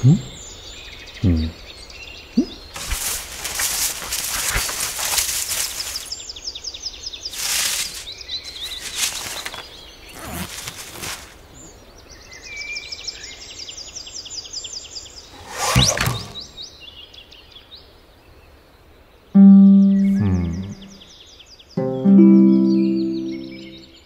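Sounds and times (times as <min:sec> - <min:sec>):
cartoon airy whooshes: 0:15.4 - 0:16.6.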